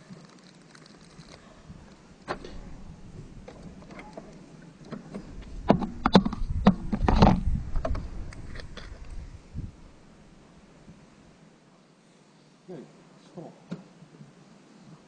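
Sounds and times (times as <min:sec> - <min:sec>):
light handling noise: 0:00.0 - 0:11.1
hand knocking and rubbing microphone: 0:04.9 - 0:10.0.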